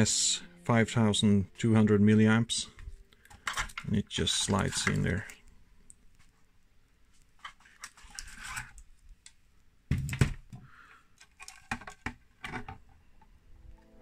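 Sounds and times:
light clicks and knocks of plastic: 7.4 - 13.3.

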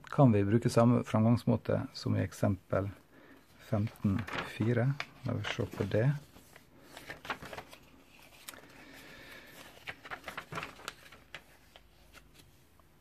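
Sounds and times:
pages being turned: 3.7 - 12.8.

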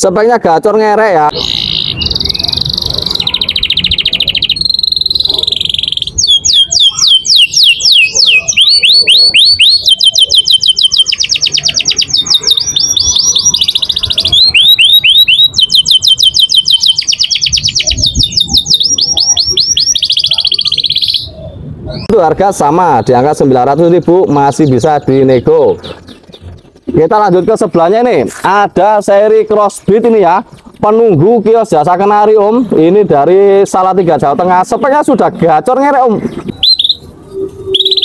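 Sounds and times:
canary singing trills: 1.3 - 27.9, 36.3 - 38.0.

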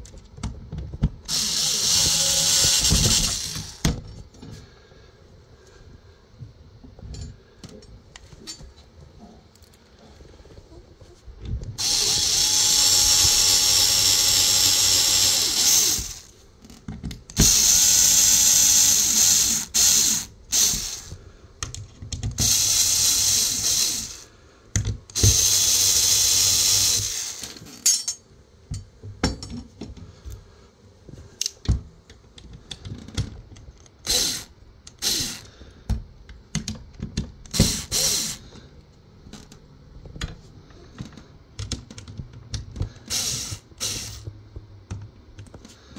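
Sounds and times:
cordless drill running: 1.3 - 3.9, 11.8 - 16.4, 17.4 - 21.2, 22.4 - 24.3, 25.1 - 27.7, 34.0 - 35.5, 37.5 - 38.5, 43.0 - 44.2.

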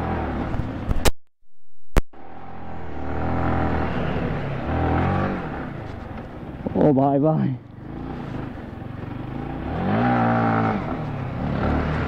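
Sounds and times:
motorcycle engine revving: 2.2 - 6.9, 7.7 - 12.0.

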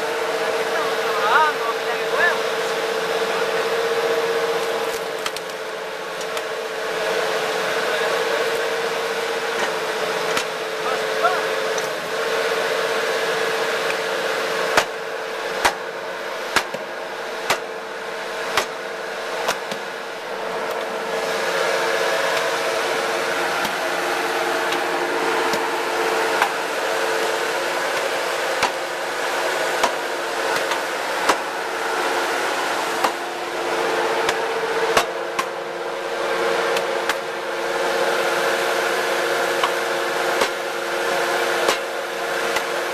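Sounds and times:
log splitter humming: 0.0 - 42.9
log cracking: 4.8 - 5.6.

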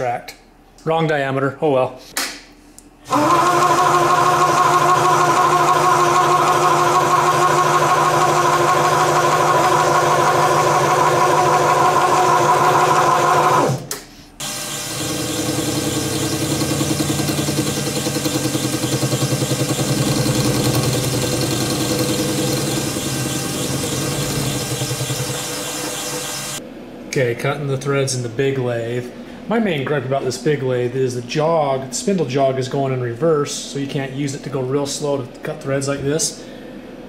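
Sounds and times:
lathe whining: 3.1 - 13.8, 14.4 - 26.6
lathe low hum: 3.1 - 26.7.

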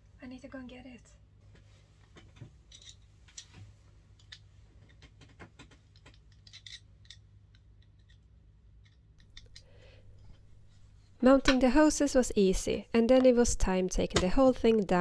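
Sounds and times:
low steady hum: 5.7 - 15.0.

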